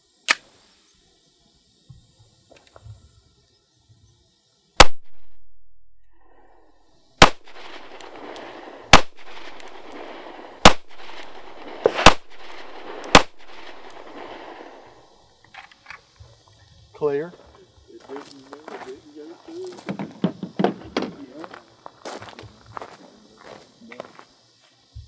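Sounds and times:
pistol shots: 4.8 - 5.4, 7.2 - 15.2.

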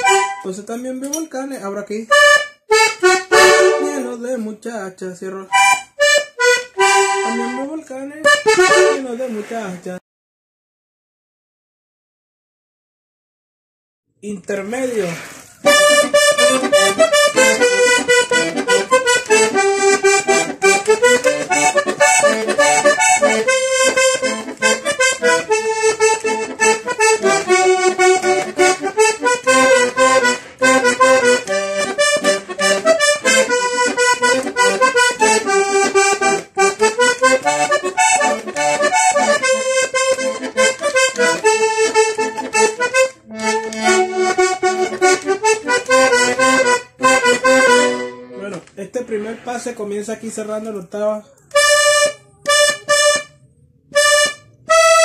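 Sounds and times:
button accordion playing: 0.0 - 0.6, 2.1 - 4.2, 5.5 - 9.6, 15.6 - 49.7, 51.5 - 55.0.

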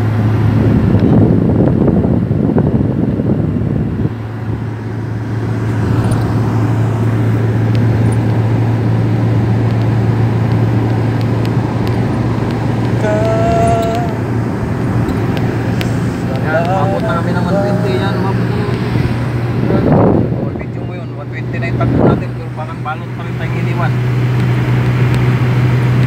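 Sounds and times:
tyre and wind noise: 0.0 - 17.4, 18.0 - 20.9
car engine drone: 0.0 - 26.0.

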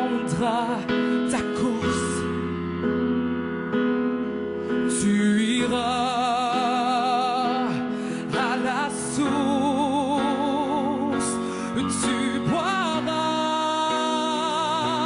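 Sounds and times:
woman singing a slow ballad: 0.0 - 2.4.

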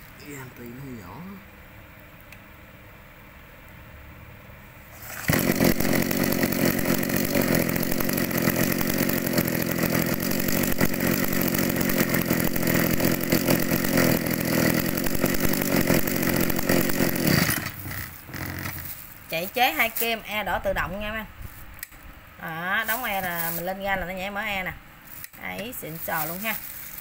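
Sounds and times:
brush cutter engine running: 5.0 - 21.2, 22.8 - 27.0.

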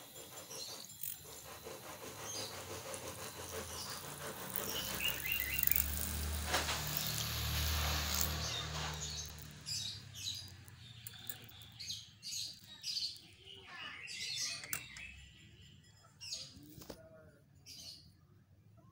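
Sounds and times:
hand mixer motor whirring: 0.0 - 11.8
small birds chirping: 0.0 - 18.9.

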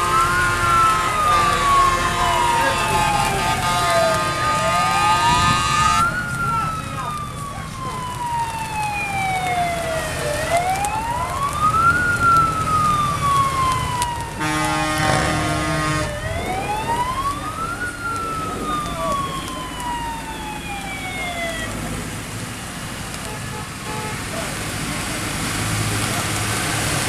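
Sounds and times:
horn blaring: 0.0 - 6.8, 13.9 - 19.8, 23.2 - 24.5
fire engine siren wailing: 0.0 - 27.0
tractor engine rumble: 0.0 - 27.0.

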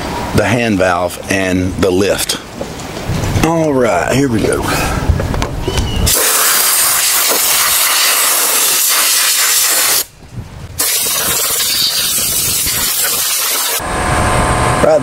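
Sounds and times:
compressed air blow gun hissing: 6.1 - 10.1, 10.8 - 13.8.

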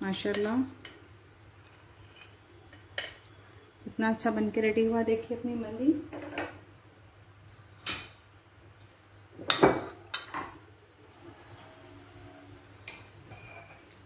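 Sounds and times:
dishes and utensils clinking: 9.4 - 10.6, 11.2 - 12.1, 12.8 - 14.0.

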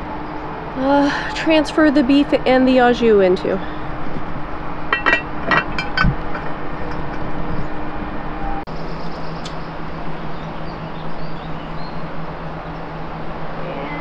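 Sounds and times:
outdoor background noise: 0.0 - 14.0
metal lid lifter clinking: 4.9 - 7.2.

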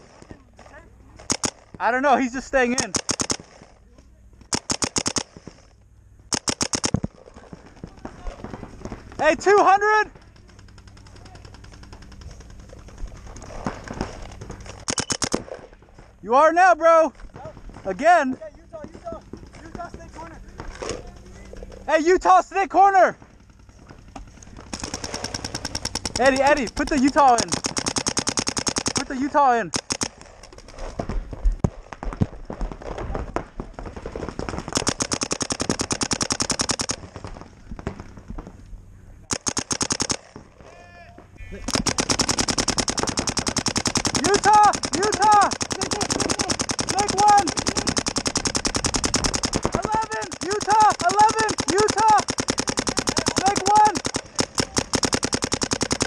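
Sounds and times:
paintball markers firing: 1.2 - 2.0, 2.6 - 3.8, 4.4 - 15.8, 23.2 - 38.5, 39.3 - 40.7, 41.6 - 56.0.

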